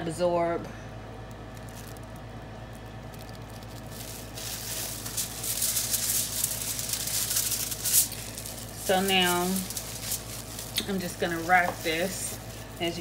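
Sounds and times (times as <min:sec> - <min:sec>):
low steady hum: 0:00.0 - 0:13.0
crinkling aluminium foil: 0:01.2 - 0:13.0.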